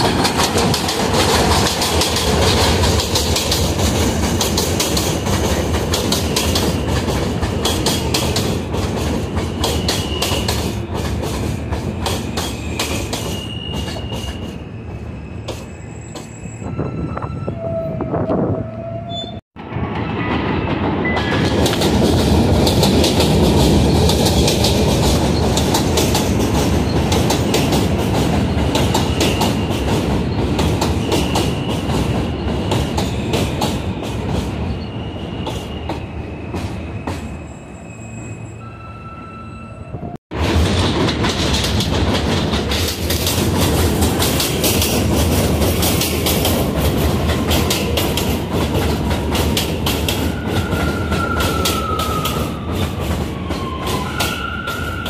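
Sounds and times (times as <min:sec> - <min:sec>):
train wheels clattering: 0:00.0 - 0:14.6, 0:19.9 - 0:34.7, 0:40.3 - 0:55.0.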